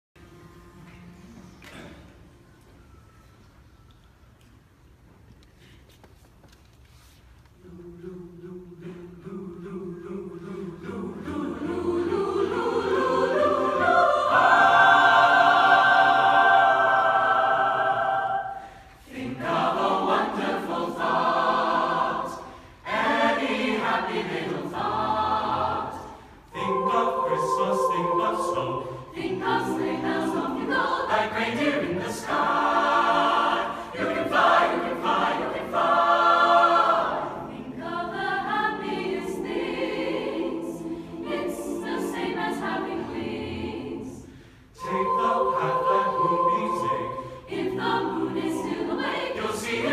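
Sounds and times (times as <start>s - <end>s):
chamber choir singing: 7.6s - 49.9s.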